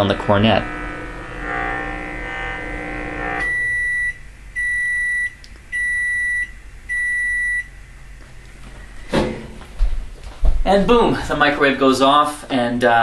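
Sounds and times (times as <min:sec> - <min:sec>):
meter speaker buzzing: 0:00.0 - 0:11.9
microwave oven beeps: 0:02.8 - 0:07.8.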